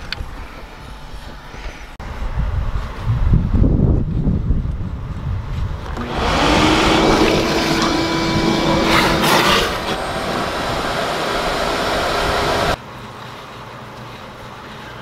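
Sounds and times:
shop vacuum running: 0:05.9 - 0:12.8
vacuum slurping water: 0:06.0 - 0:12.8.

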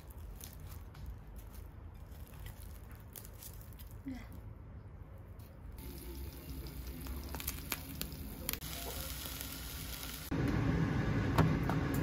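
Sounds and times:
eggs sizzling in oil: 0:05.8 - 0:10.6.

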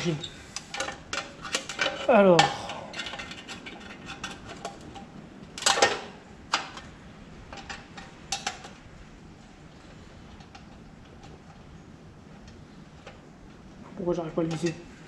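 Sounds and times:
clicks and knocks of metal cover: 0:00.6 - 0:06.9, 0:07.5 - 0:08.8.

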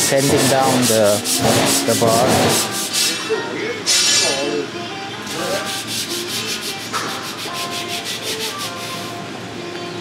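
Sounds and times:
sanding metal bar by hand: 0:00.0 - 0:03.1, 0:05.4 - 0:09.1.

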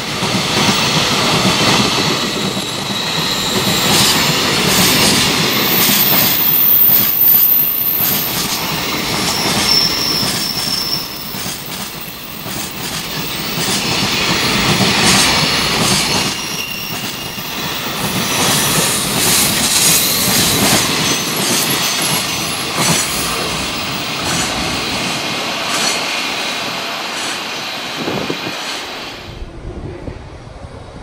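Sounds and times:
train wheels roaring on rail: 0:00.0 - 0:31.0
faint high wheel squeal: 0:05.6 - 0:11.4, 0:16.0 - 0:18.8
wheels clacking over rail joints: 0:07.9 - 0:27.5.

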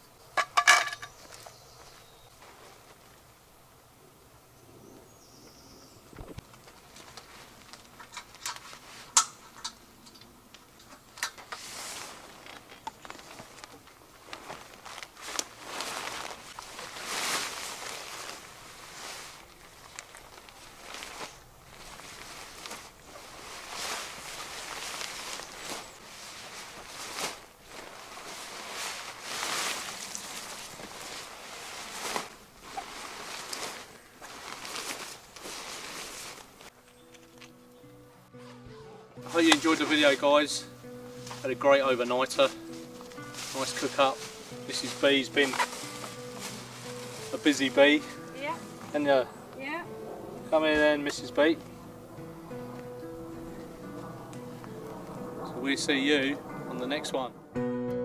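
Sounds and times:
tarp sheet rustling: 0:01.7 - 0:03.2, 0:06.5 - 0:09.6, 0:11.4 - 0:37.7, 0:38.3 - 0:57.2
tarp fittings clicking: 0:06.2 - 0:18.5, 0:26.4 - 0:37.7, 0:41.2 - 0:49.0.

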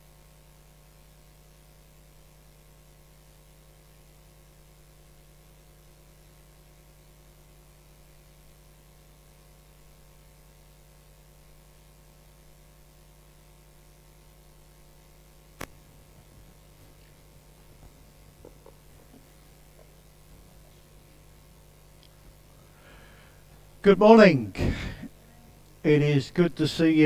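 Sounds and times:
low mains hum: 0:00.0 - 0:27.0
sharp click: 0:15.6 - 0:15.8.

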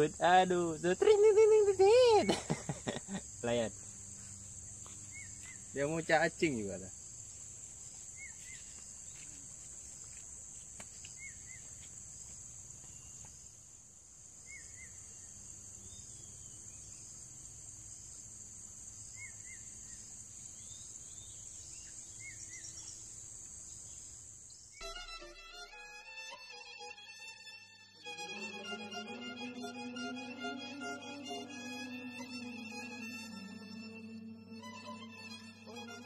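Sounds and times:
bird chirping: 0:00.0 - 0:06.1, 0:07.9 - 0:09.2, 0:19.1 - 0:24.8
insects droning: 0:00.0 - 0:25.1, 0:28.0 - 0:36.0.

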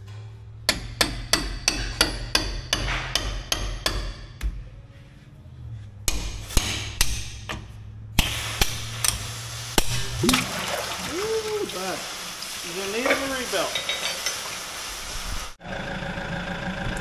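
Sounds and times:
hammer striking steel punch: 0:00.7 - 0:04.6, 0:06.1 - 0:09.1.

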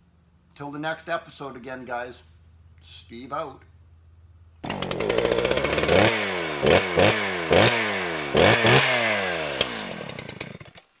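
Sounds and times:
small petrol engine revving: 0:04.6 - 0:11.0.

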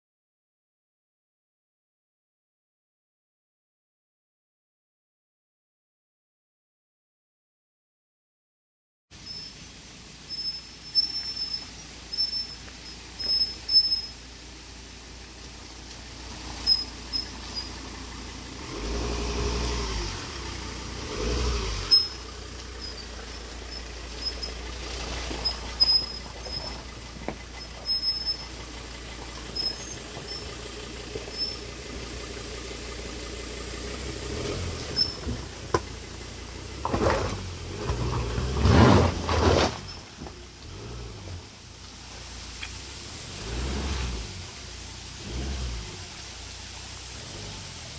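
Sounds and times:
engine running low: 0:09.2 - 0:47.9
stones crunching under tyres: 0:15.3 - 0:33.3, 0:33.9 - 0:41.4.

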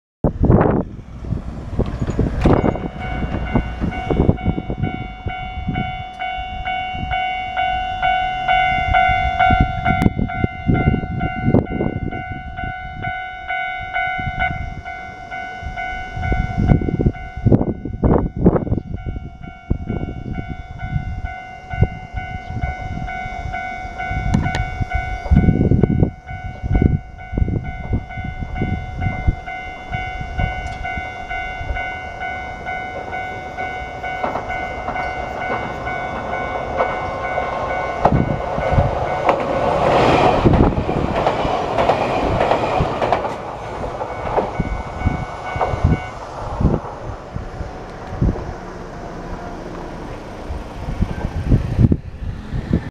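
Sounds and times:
electric train passing: 0:00.2 - 0:52.9
wind buffeting microphone: 0:00.2 - 0:52.9
level-crossing alarm ringing: 0:02.0 - 0:47.7
wheels clattering over rails: 0:32.4 - 0:51.5.

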